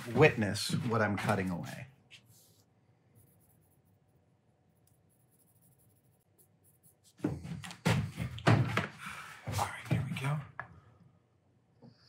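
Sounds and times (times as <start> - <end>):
marker scratching: 2.1 - 7.8.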